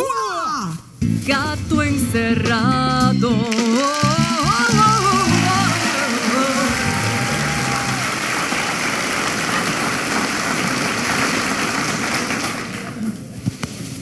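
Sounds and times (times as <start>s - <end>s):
theme music: 1.0s - 8.4s
audience applause: 3.4s - 13.2s.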